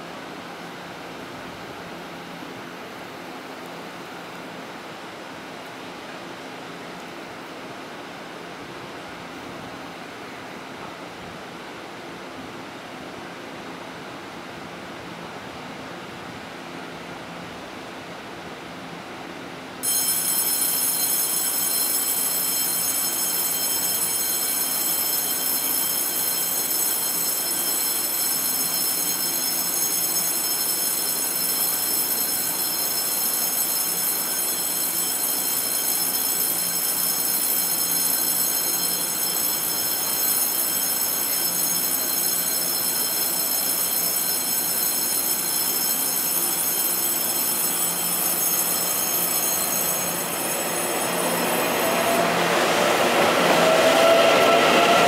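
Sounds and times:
electric train running: 0:19.8 - 0:55.0
high-pitched multi-tone whine: 0:19.8 - 0:55.0.

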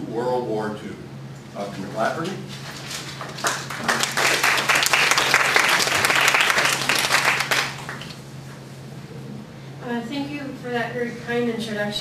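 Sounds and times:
audience applauding: 0:03.2 - 0:08.2.

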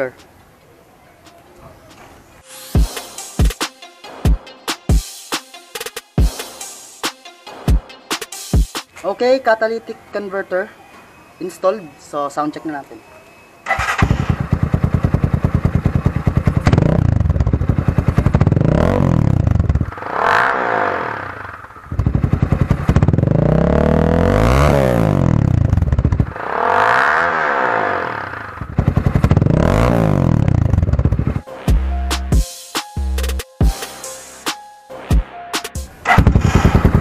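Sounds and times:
motorcycle engine idling and revving: 0:13.6 - 0:32.4, 0:35.0 - 0:37.0.

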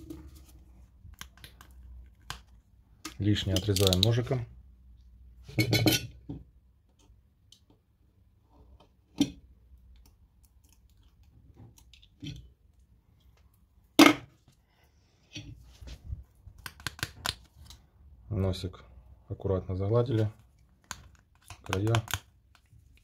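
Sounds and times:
sharp clicks and taps of tools: 0:01.1 - 0:04.3.

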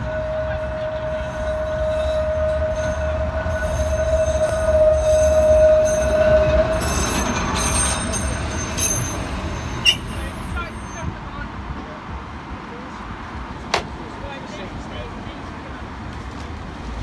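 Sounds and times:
tram wheels squealing on rails: 0:00.0 - 0:11.4
tram low rumble: 0:00.0 - 0:17.0.

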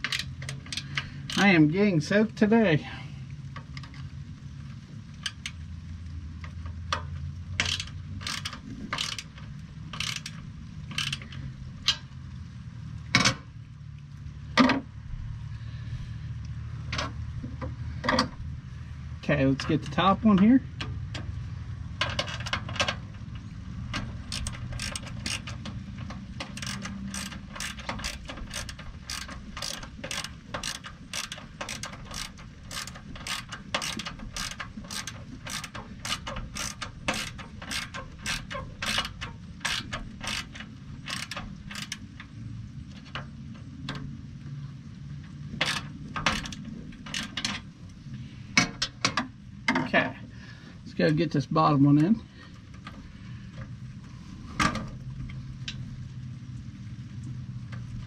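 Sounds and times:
ratchet wrench clicking: 0:00.0 - 0:01.6, 0:06.9 - 0:12.1, 0:22.0 - 0:42.3, 0:45.6 - 0:47.6.

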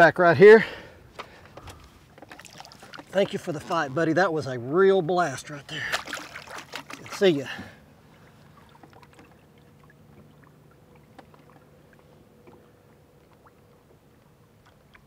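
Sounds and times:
water lapping against a boat: 0:00.6 - 0:15.0
low steady hum: 0:00.7 - 0:15.0
small drips and splashes: 0:02.2 - 0:03.8, 0:05.7 - 0:15.0.

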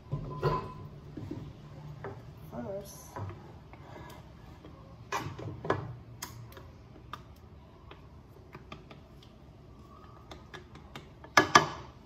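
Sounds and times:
spoon knocking and scraping dishes: 0:00.0 - 0:02.2.

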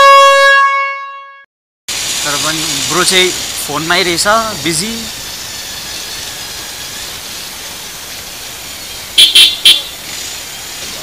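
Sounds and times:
horn toots: 0:00.0 - 0:01.4, 0:09.1 - 0:09.9.

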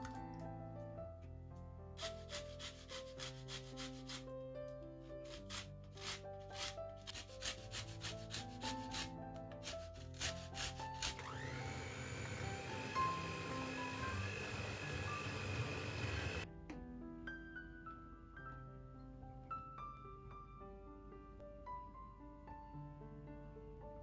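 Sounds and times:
soft instrumental music: 0:00.0 - 0:24.0
electric hand mixer whirring: 0:10.6 - 0:16.5.

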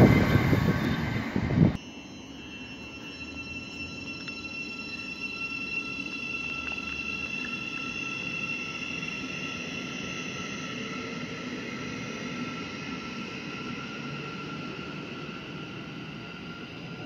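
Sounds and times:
wheels rumbling on rails: 0:00.0 - 0:01.8.

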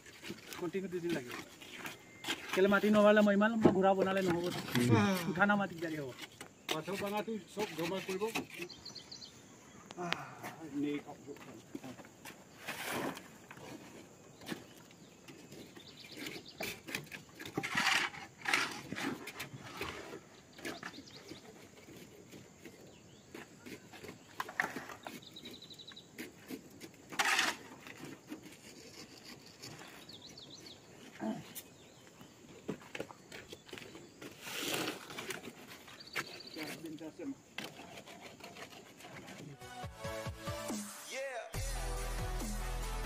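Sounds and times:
knocks of concrete work: 0:00.0 - 0:08.8, 0:14.4 - 0:31.6, 0:32.6 - 0:39.6
metal shovels scraping: 0:04.0 - 0:08.8, 0:11.8 - 0:22.1, 0:26.2 - 0:30.2, 0:34.2 - 0:39.9.

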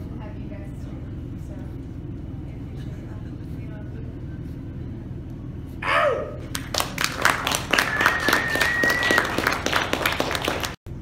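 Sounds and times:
small crowd clapping: 0:06.4 - 0:10.8
crowd cheering: 0:06.7 - 0:10.8
high whistle: 0:07.8 - 0:09.5.

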